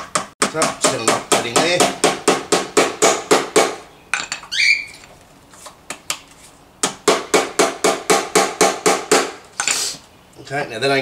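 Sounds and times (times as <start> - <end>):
brief rising squeak: 4.5 - 5.0.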